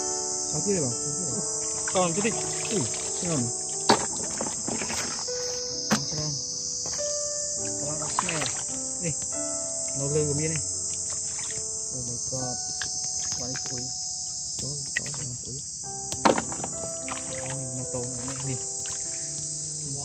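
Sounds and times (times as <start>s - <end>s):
high-pitched insect chorus: 0.0s - 20.0s
hands splashing in shallow water: 1.6s - 6.2s, 7.9s - 8.7s, 10.9s - 11.7s, 12.7s - 13.9s, 14.6s - 15.4s, 16.2s - 19.3s.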